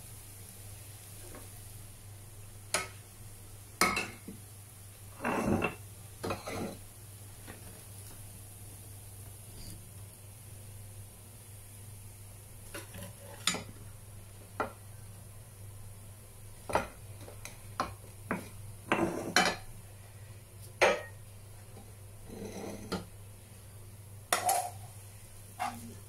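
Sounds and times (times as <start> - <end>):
spatula scraping a frying pan: 5.1 - 7.6, 12.7 - 13.7, 18.3 - 19.7, 22.2 - 23.1, 25.5 - 26.0.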